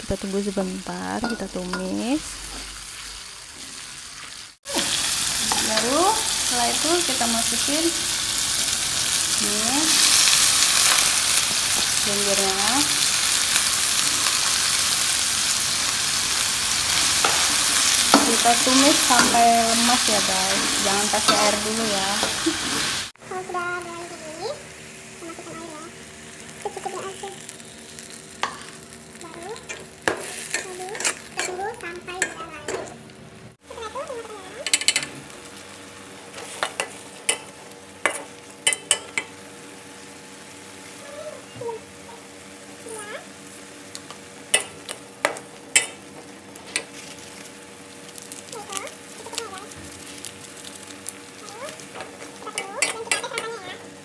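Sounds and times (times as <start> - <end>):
greens sizzling in oil: 0.0 - 54.0
spatula scraping a wok: 29.7 - 31.6.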